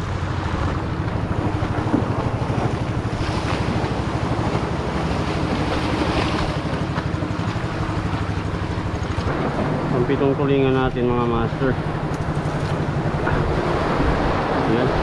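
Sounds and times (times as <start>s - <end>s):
boat engine running: 0.0s - 15.0s
waves washing on rocks: 0.0s - 15.0s
wind on microphone: 9.0s - 15.0s.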